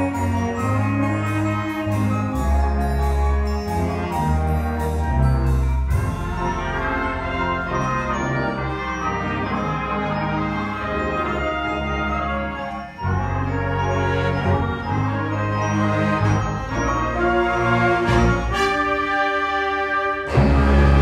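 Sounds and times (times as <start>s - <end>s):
concert band playing: 0.0s - 21.0s
tuba and electric bass: 20.3s - 21.0s.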